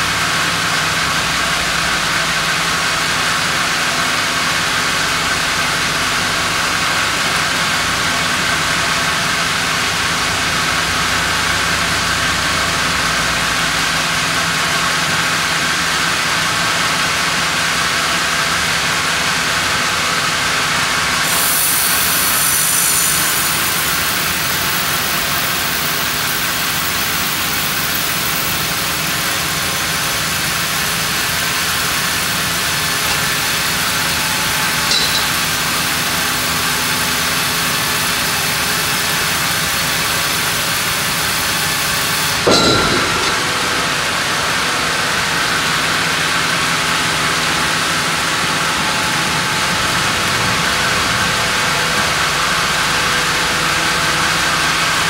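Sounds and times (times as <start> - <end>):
band saw machinery running: 0.0 - 55.0
saw blade hissing through log: 21.2 - 26.5
metal clank: 33.0 - 34.2, 34.8 - 35.8, 42.5 - 45.4.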